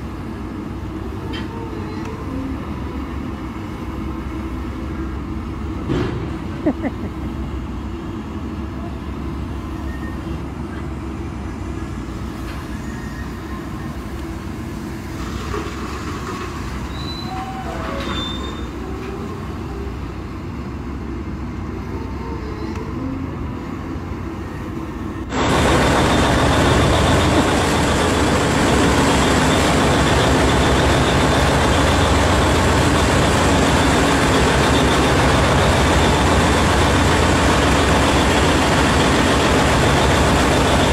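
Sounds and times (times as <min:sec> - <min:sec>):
low machine rumble: 0:00.0 - 0:40.9
machine squeals: 0:09.8 - 0:10.4, 0:12.5 - 0:14.0, 0:16.7 - 0:19.1, 0:25.3 - 0:40.9
harsh dense machine noise: 0:23.4 - 0:40.9.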